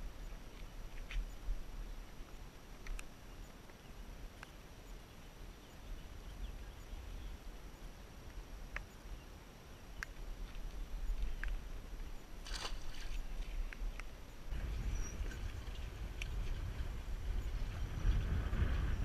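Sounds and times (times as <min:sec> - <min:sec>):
faint high ticks: 0:02.2 - 0:05.0, 0:07.7 - 0:09.2, 0:10.0 - 0:14.5
wind buffeting microphone: 0:10.4 - 0:19.0.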